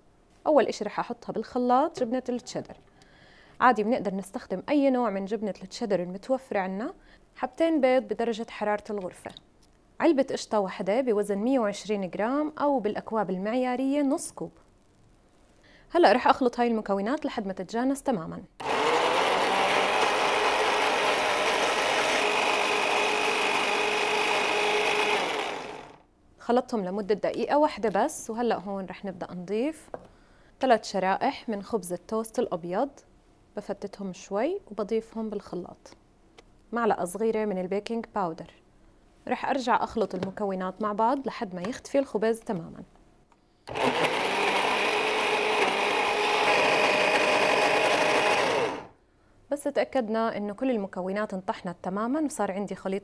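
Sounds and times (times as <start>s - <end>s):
electric blender running: 18.6s - 26.0s, 43.7s - 48.9s.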